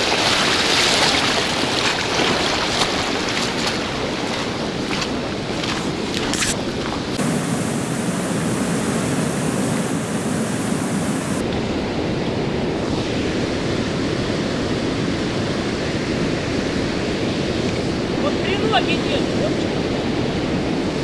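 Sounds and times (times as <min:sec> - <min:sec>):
river rushing over rapids: 0:07.2 - 0:11.4.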